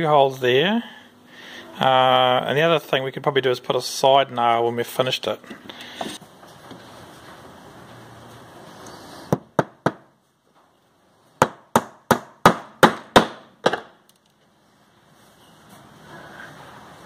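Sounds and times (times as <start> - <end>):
hammer driving nails into wood: 11.4 - 14.0.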